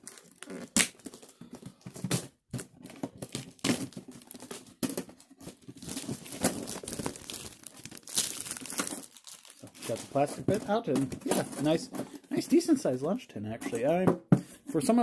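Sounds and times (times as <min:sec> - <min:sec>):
plastic shrink wrap crinkling: 0:00.0 - 0:11.8.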